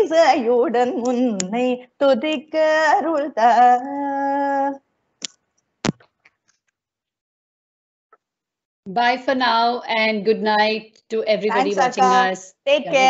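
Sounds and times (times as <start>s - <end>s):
woman singing unaccompanied: 0.0s - 4.8s.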